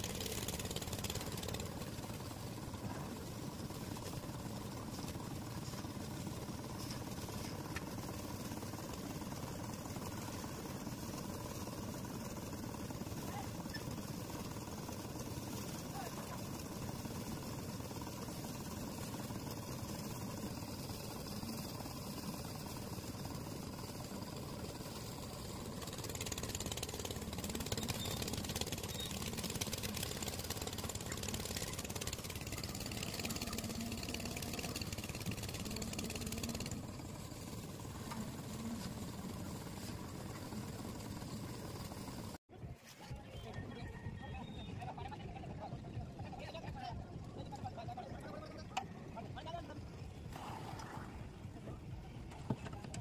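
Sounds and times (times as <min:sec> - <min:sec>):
concrete mixer engine running: 0:00.0 - 0:42.4.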